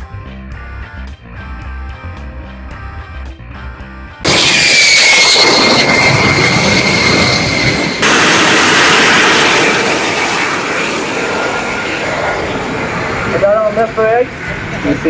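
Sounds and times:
turbojet engine roaring: 0:04.2 - 0:15.0.

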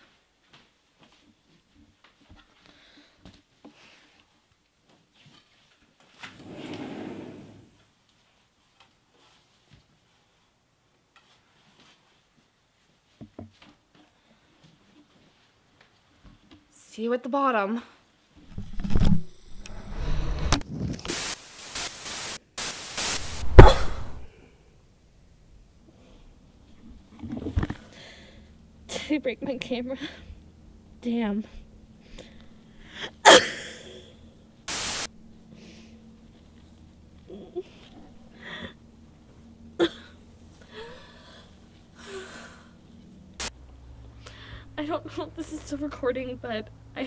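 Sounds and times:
hissing static: 0:18.8 - 0:24.3, 0:34.7 - 0:35.2
woman gasping and groaning: 0:37.3 - 0:38.8, 0:39.8 - 0:42.7.

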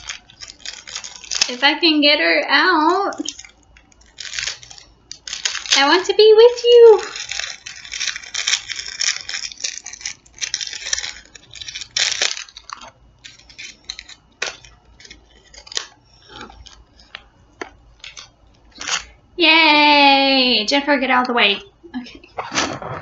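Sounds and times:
plastic wrapper crinkling: 0:00.0 - 0:02.0, 0:02.8 - 0:19.2.

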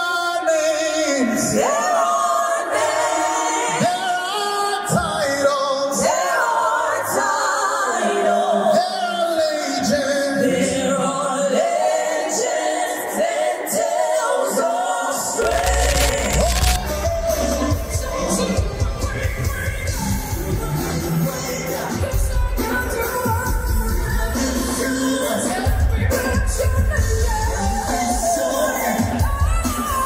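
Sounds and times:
gospel singing through pa: 0:00.0 - 0:30.0
band with heavy bass and cymbals: 0:15.4 - 0:30.0.

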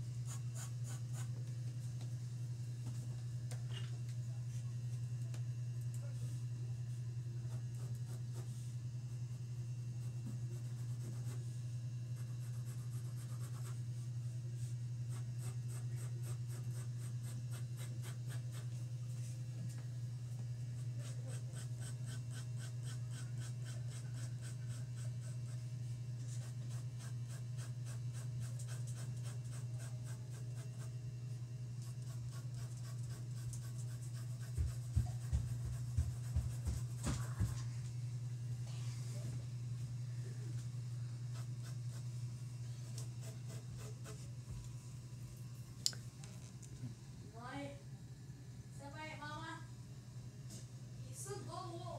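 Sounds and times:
steady low hum: 0:00.0 - 0:51.9
pencil scratching on paper: 0:00.2 - 0:01.4, 0:07.4 - 0:08.6, 0:10.0 - 0:11.5, 0:12.1 - 0:14.0, 0:14.6 - 0:18.8, 0:20.8 - 0:25.6, 0:26.3 - 0:30.9, 0:31.8 - 0:37.5, 0:41.3 - 0:42.1, 0:42.8 - 0:44.3.

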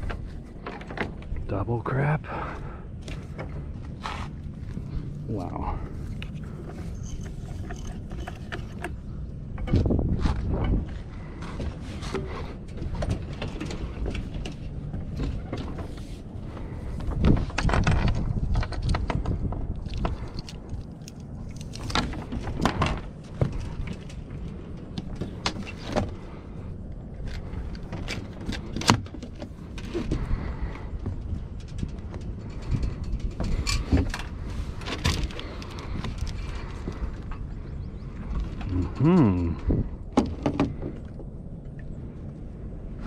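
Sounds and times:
steady low rumble: 0:00.0 - 0:43.0
knocks and thumps on boat deck: 0:39.6 - 0:41.3.

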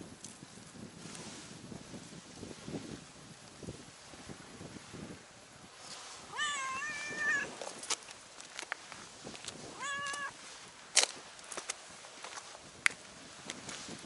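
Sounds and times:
cat meowing: 0:06.3 - 0:07.5, 0:09.8 - 0:10.4.

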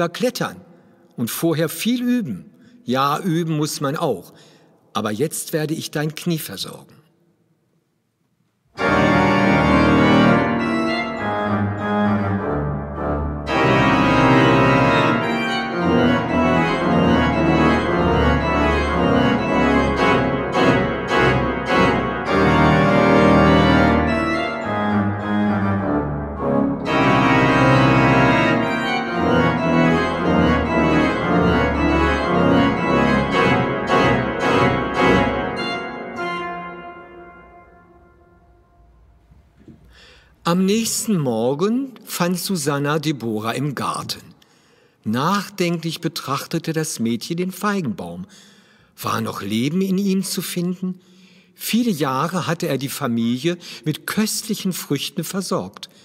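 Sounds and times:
church organ chords: 0:08.8 - 0:40.2.

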